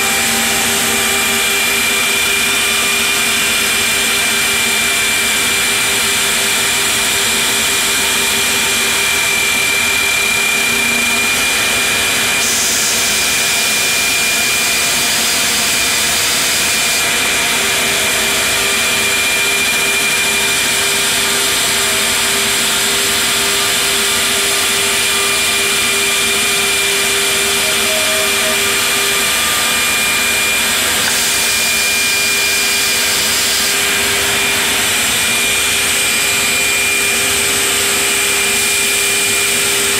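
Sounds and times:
router cutting wood with high whine: 0.0 - 39.9.

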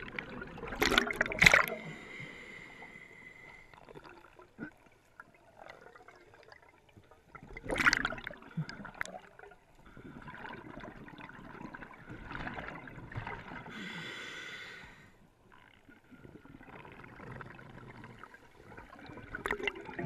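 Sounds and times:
bubbles rushing: 0.0 - 1.9, 4.0 - 9.5, 16.6 - 20.0
diver breathing through regulator: 1.6 - 3.8, 13.7 - 15.2.

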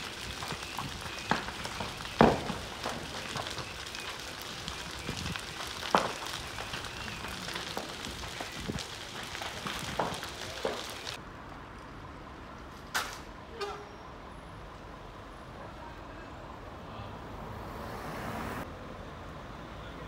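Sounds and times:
fire crackling and hissing: 0.0 - 11.2
sharp cracks and pops: 0.0 - 11.2.

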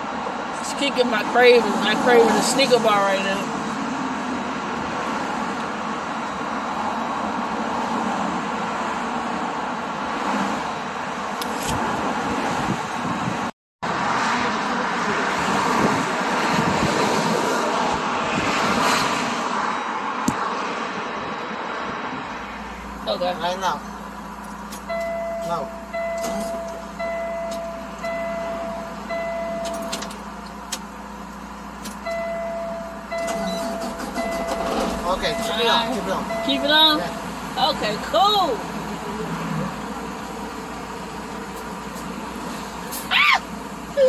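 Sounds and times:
highway traffic roar: 0.0 - 44.0
electronic warning beeps: 24.9 - 30.1, 32.0 - 37.3.

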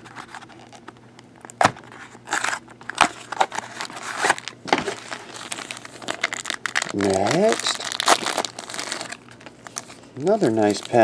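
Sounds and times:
cardboard scraping rustles: 1.8 - 5.8.

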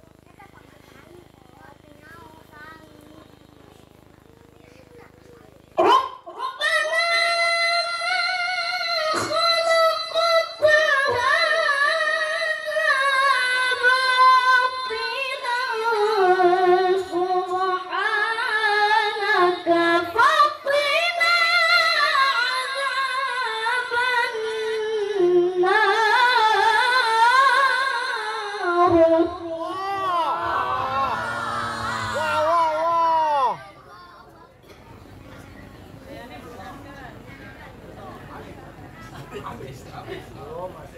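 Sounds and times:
child reciting in melodic chant: 0.2 - 3.7.

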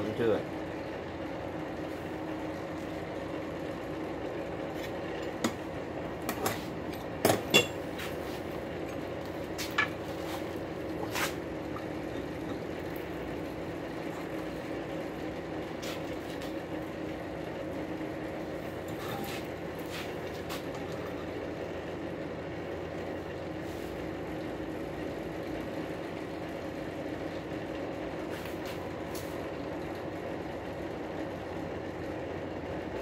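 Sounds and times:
steady mechanical hum: 0.0 - 33.0
metal clanks of vise and wrench: 7.3 - 7.8.

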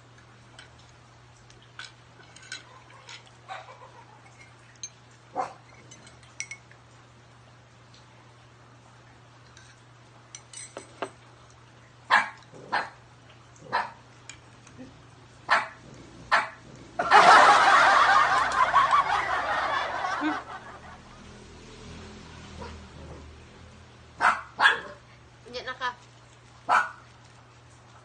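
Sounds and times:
dog barking: 5.3 - 5.6, 12.1 - 13.0, 13.7 - 14.0, 15.5 - 16.6, 24.2 - 25.0, 26.7 - 27.0
cutlery clinking on plates: 10.4 - 11.2.

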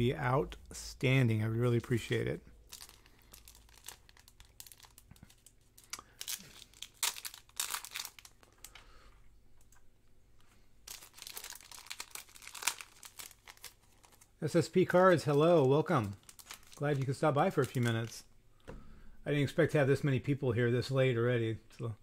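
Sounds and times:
plastic sleeve crinkling: 1.9 - 8.9, 10.8 - 18.3.

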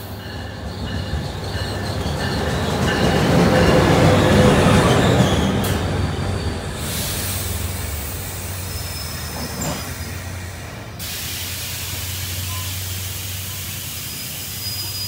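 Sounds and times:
locomotive bell ringing: 0.0 - 6.9
locomotive passing: 0.0 - 15.0
train coaches rumbling by: 0.0 - 15.0.

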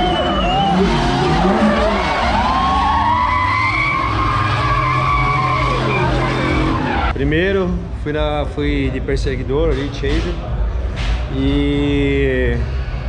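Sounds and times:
car engines at high revs: 0.0 - 7.2
tyres skidding: 0.0 - 7.2.

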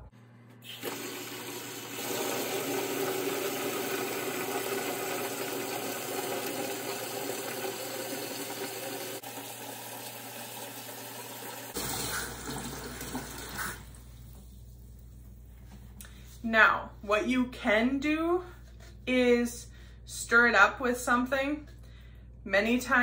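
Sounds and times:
tap water filling bucket: 0.7 - 14.5.

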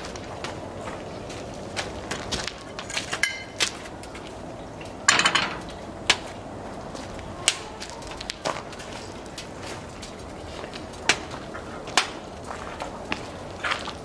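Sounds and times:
wood fire crackling: 0.0 - 14.0
frying pan clattering on iron grate: 2.8 - 3.6, 5.1 - 6.2.

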